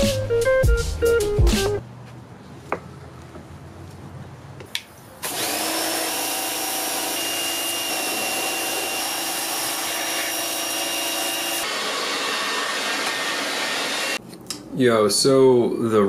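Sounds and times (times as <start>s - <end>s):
pressure washer motor whine: 5.2s - 14.2s.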